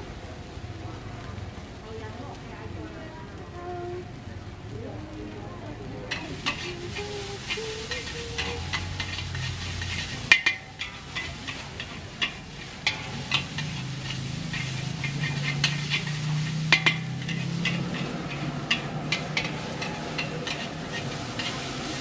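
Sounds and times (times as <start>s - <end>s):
steady sizzle: 0.0s - 22.0s
metal spatula scraping a wok: 6.1s - 22.0s.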